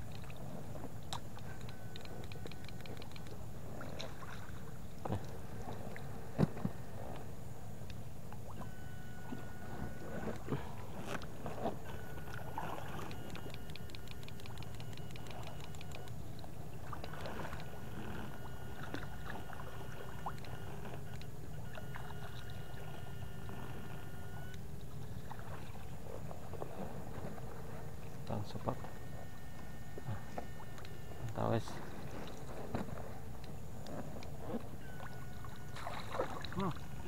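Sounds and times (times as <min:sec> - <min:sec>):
water sloshing: 0:00.0 - 0:37.0
high-pitched electric whine: 0:08.4 - 0:24.6, 0:34.6 - 0:37.0
splashes from wading: 0:34.9 - 0:37.0.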